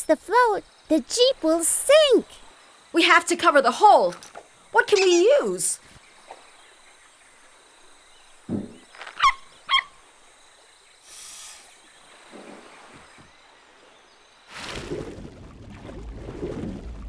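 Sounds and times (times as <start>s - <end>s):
soft cartoon thump: 8.5s - 8.9s
brief hiss: 11.0s - 11.9s.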